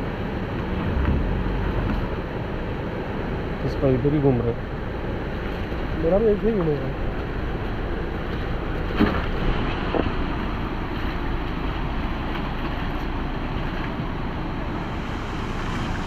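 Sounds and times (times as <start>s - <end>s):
vehicle engine rumble: 0.0s - 16.0s.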